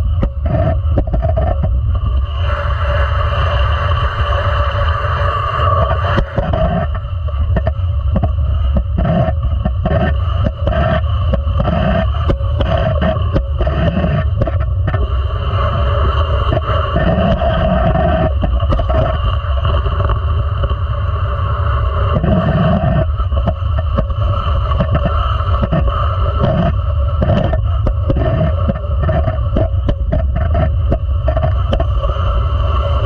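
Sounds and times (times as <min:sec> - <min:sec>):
sharp clicks and knocks: 0:00.2 - 0:01.8, 0:05.8 - 0:15.0, 0:22.1 - 0:32.0.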